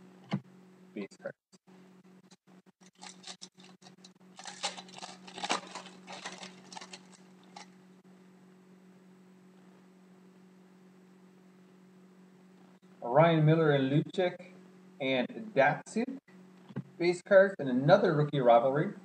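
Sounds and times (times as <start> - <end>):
low electrical hum: 0.0 - 19.0
foil wrapper crinkling: 2.8 - 7.8.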